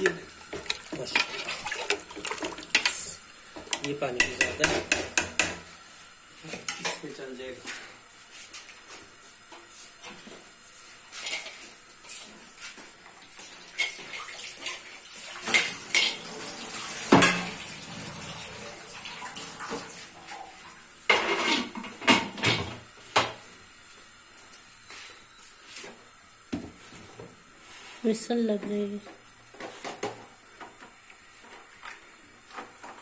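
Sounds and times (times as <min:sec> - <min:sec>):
tap water running: 0:00.0 - 0:05.7, 0:13.0 - 0:23.4.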